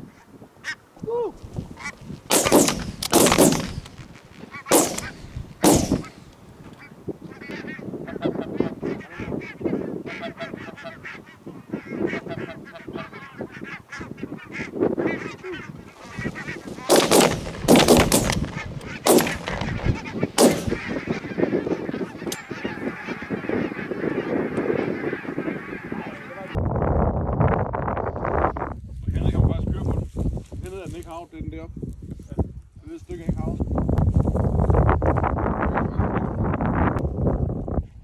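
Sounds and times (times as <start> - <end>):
shotgun shots: 2.3 - 4.0, 4.7 - 6.2, 16.8 - 21.1
geese honking: 6.8 - 26.6.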